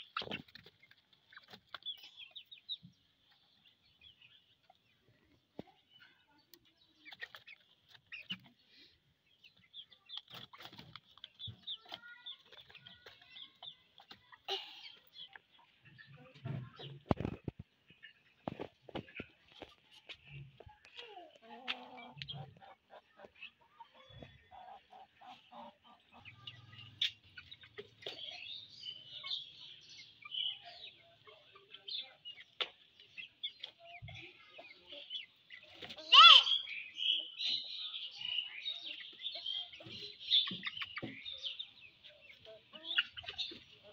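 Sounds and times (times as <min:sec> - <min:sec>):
chickens clucking softly: 0:00.0 - 0:43.9
small birds chirping: 0:00.0 - 0:43.9.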